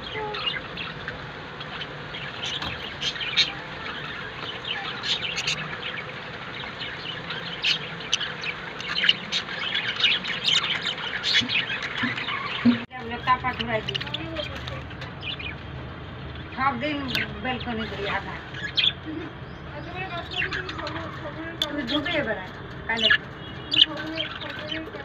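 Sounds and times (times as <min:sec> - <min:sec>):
budgerigars chirping and squawking: 0:00.0 - 0:25.0.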